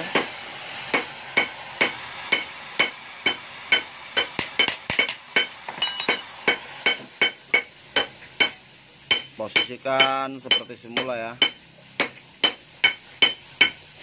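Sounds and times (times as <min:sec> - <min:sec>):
steady hiss: 0:00.0 - 0:14.0
hammer tapping on metal: 0:00.9 - 0:13.8.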